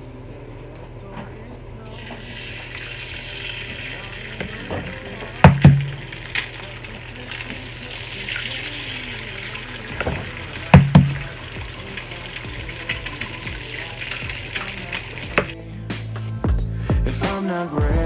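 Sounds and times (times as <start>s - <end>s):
oil sizzling in a pan: 1.9s - 15.6s.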